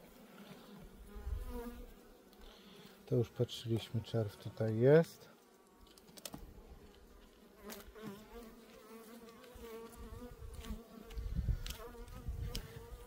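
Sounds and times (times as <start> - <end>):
honeybees buzzing: 0.0 - 5.8, 6.4 - 13.0.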